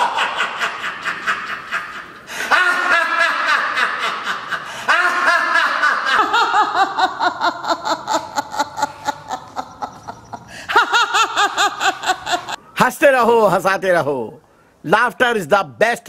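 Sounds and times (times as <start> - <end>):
person laughing heartily: 0.0 - 12.6.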